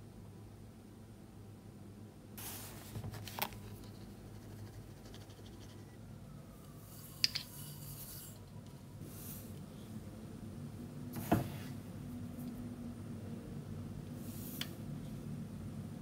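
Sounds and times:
spoon scraping into sugar: 6.8 - 8.5.

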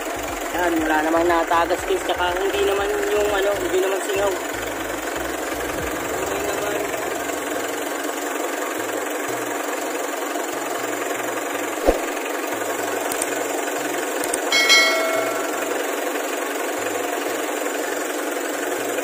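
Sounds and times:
diesel engine idling: 0.0 - 11.4.

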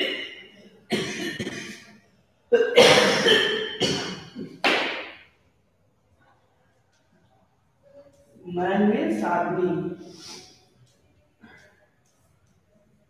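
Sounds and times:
person coughing: 0.0 - 1.9, 2.5 - 4.6.

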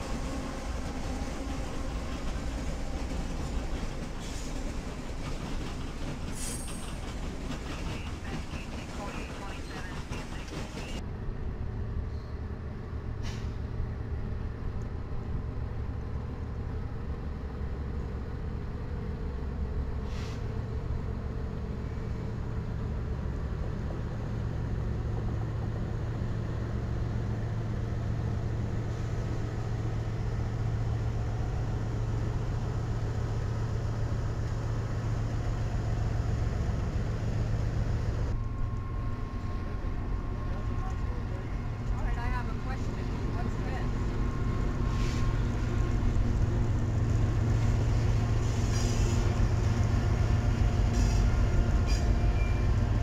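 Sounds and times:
freight train rolling by: 0.0 - 53.0
locomotive engine drone: 0.0 - 53.0.

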